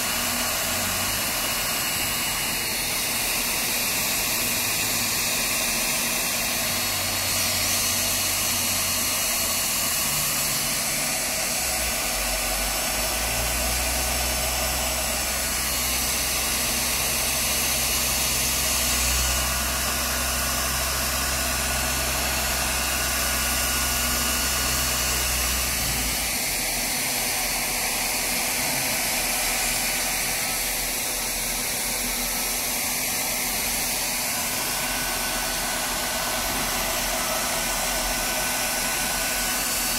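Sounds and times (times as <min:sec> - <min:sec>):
hot air gun fan hissing: 0:00.0 - 0:39.9.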